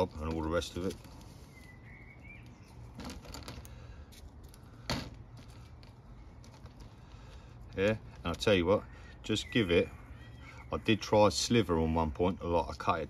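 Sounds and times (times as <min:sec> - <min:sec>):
handling clicks and rustles: 0:00.0 - 0:08.8
faint bird chirp: 0:01.2 - 0:03.0, 0:08.5 - 0:11.6.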